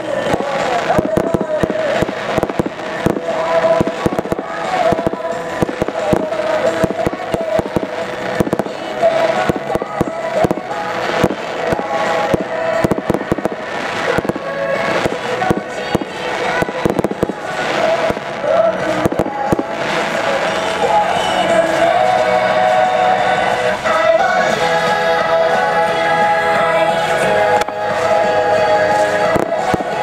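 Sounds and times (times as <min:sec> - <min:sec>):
sharp popping: 0:00.0 - 0:22.8, 0:29.0 - 0:30.0
fireworks shells bursting: 0:00.0 - 0:25.7, 0:27.0 - 0:30.0
fireworks crackling: 0:00.0 - 0:30.0.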